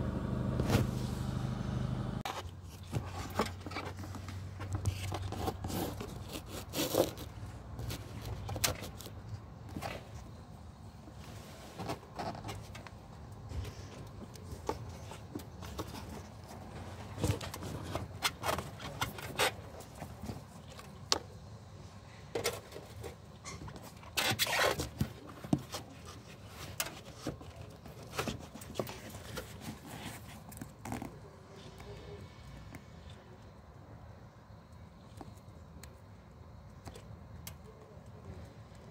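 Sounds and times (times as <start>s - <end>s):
loud scrape: 0.2s - 2.3s.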